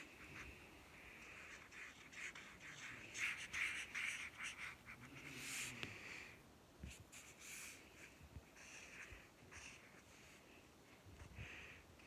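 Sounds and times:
marker scraping on paper: 0.0 - 5.8, 6.8 - 10.6.

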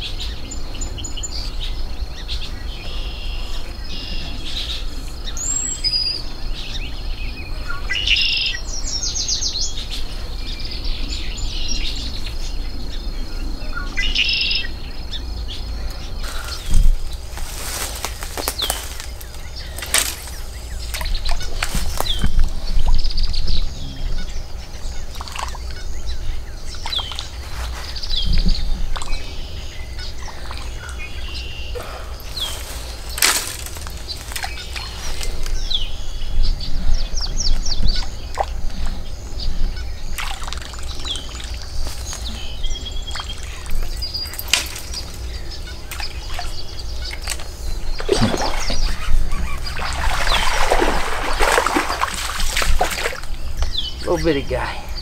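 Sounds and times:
small birds chirping: 0.0 - 55.0
steady low hum: 0.0 - 55.0
fish splashing at surface: 40.2 - 41.7, 48.0 - 53.3.

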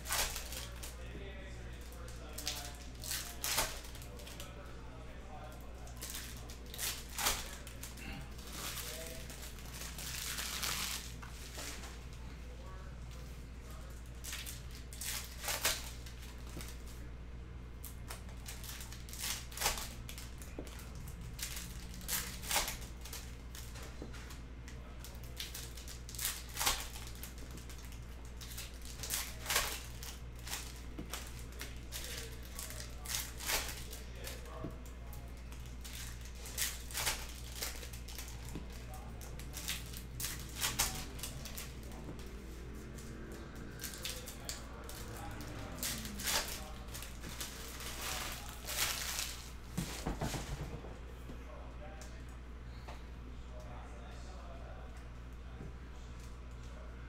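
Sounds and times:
cards and wrappers rustling: 0.0 - 12.3, 13.1 - 17.1, 17.8 - 50.7
steady low hum: 0.0 - 57.0.

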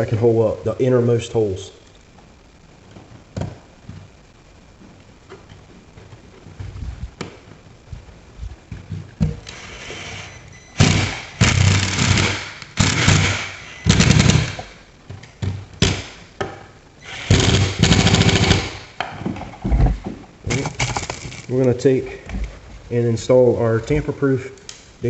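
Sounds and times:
impact driver hammering screws: 10.8 - 14.7.

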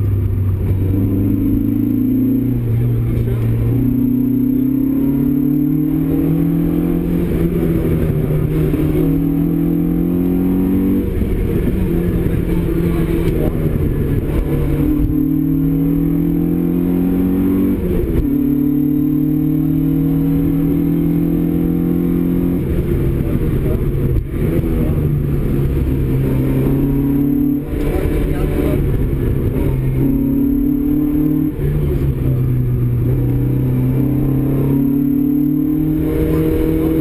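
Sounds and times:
rally car engine revving: 0.0 - 37.0.

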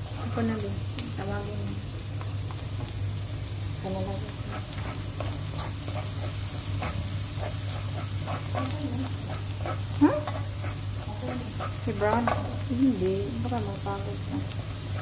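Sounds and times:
garlic sizzling in butter: 0.0 - 15.0
steady low hum: 0.0 - 15.0
spatula scraping pan: 4.4 - 12.6.

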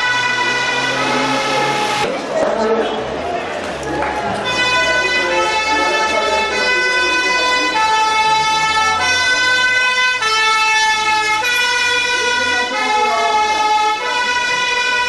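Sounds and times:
two-tone emergency siren: 0.0 - 2.2, 4.4 - 15.0.

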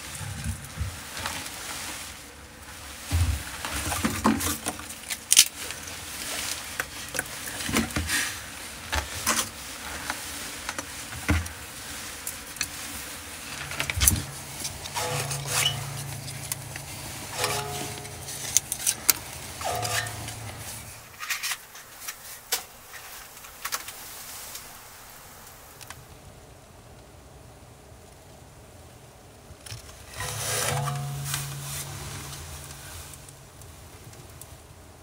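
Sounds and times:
scraping through ash in a stove: 0.0 - 24.6, 30.0 - 33.6.

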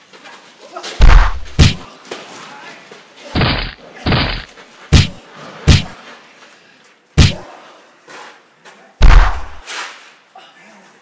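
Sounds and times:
scuffling of fist fight: 0.9 - 1.9, 3.4 - 6.0, 7.2 - 7.5, 9.0 - 10.0
sharp hits: 1.0 - 1.9, 3.4 - 6.0, 7.2 - 7.4, 9.0 - 9.6.

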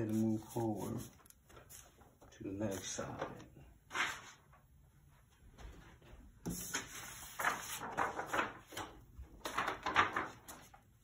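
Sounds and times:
paper and fabric rustling: 5.6 - 10.8.

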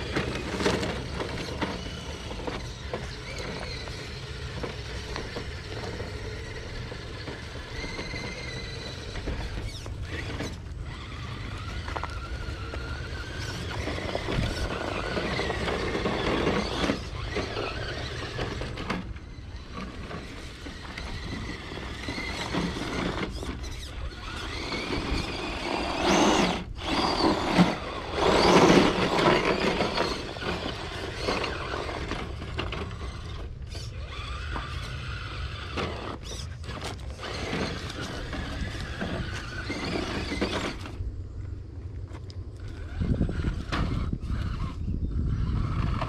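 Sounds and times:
rc truck motor whining: 0.0 - 46.0.

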